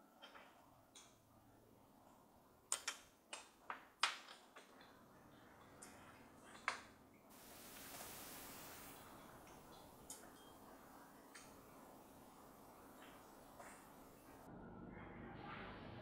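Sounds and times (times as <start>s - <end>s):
steady hiss: 7.3s - 14.5s.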